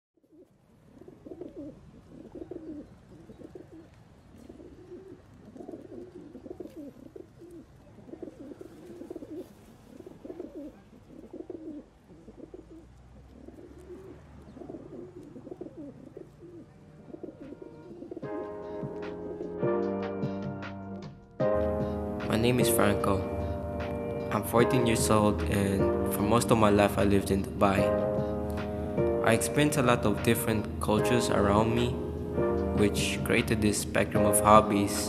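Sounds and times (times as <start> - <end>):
pigeons cooing: 0.2 - 19.7, 21.6 - 22.2, 27.8 - 29.1.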